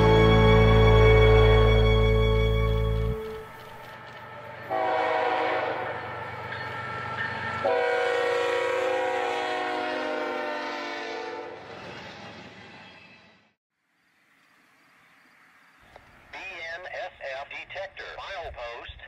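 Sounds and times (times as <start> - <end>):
locomotive air horn chord: 0.0 - 3.6, 4.7 - 6.1, 7.6 - 11.7
locomotive engine rumble: 0.0 - 8.6.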